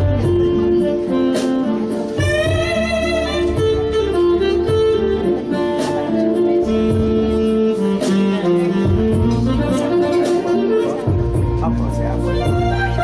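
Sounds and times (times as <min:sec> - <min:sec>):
low bass line: 0:00.0 - 0:13.0
plucked guitar music: 0:00.0 - 0:13.0.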